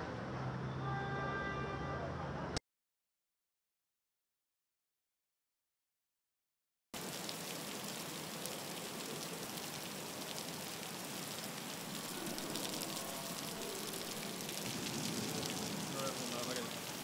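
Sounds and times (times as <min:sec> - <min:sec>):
heavy rain pouring: 0:07.0 - 0:17.0.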